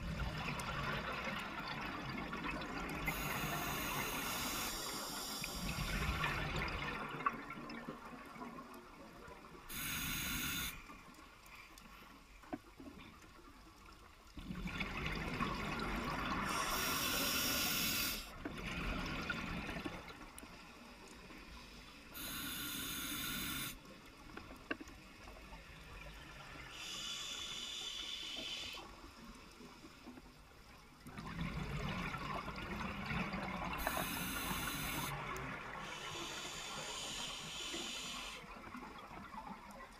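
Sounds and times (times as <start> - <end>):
regulator hissing inhalations: 3.1 - 6.0, 9.7 - 10.8, 16.5 - 18.3, 21.8 - 23.8, 26.7 - 28.8, 33.8 - 35.2, 35.8 - 38.5.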